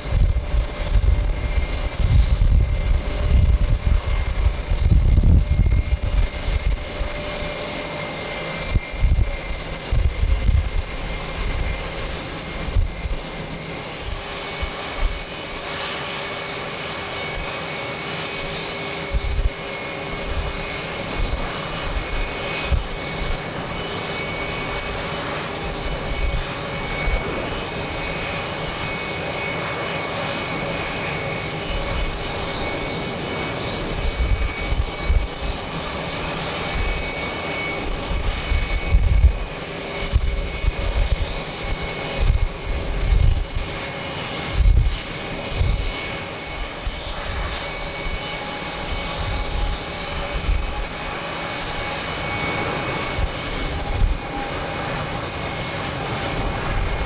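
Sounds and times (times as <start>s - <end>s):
jet engines whining: 0.0s - 57.0s
wind buffeting microphone: 0.0s - 57.0s.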